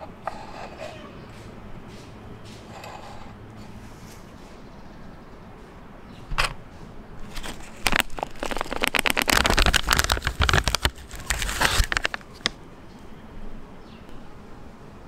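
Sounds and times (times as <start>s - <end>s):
plastic pouch crinkling: 7.2s - 12.6s.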